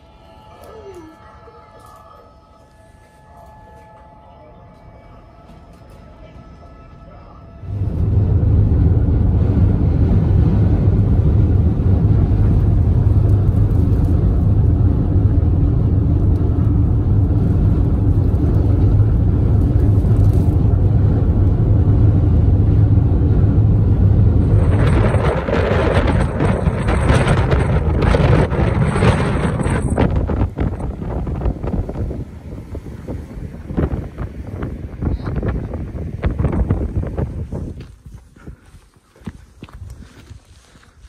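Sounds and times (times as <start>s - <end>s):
road noise inside car: 0.0s - 38.0s
wind blowing on microphone: 7.6s - 40.5s
surf washing on shore: 24.1s - 37.4s.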